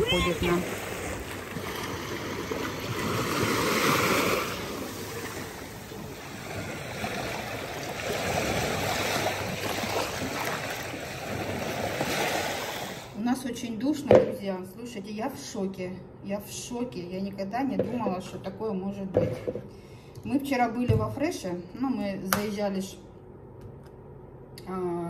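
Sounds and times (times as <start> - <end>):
small waves lapping over rocks: 0.0 - 13.2.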